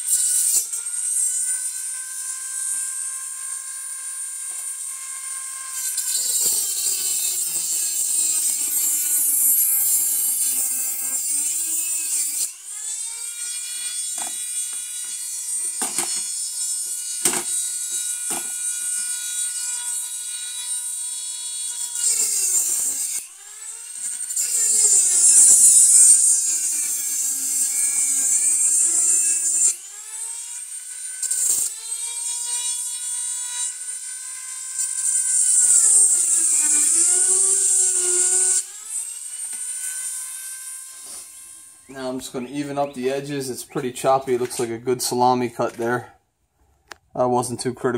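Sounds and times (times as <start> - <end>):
cutoff wheel cutting steel: 0.0 - 44.8.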